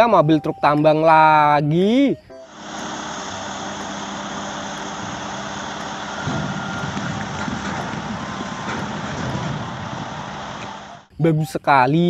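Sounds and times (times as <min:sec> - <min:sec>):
truck engine running: 0:02.4 - 0:11.2
earth sliding rumble: 0:03.3 - 0:11.1.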